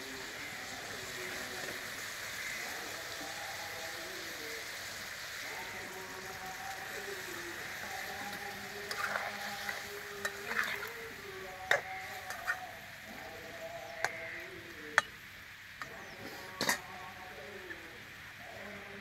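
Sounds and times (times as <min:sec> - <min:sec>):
curry sizzling: 0:00.0 - 0:19.0
spatula scraping metal pan: 0:07.8 - 0:10.9.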